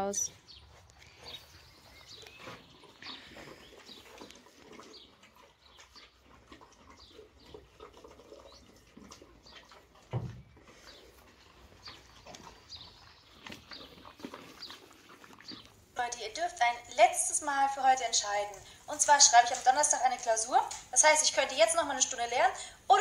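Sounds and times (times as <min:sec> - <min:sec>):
small birds chirping: 0:00.0 - 0:23.0
horse eating from plastic tub: 0:00.4 - 0:23.0.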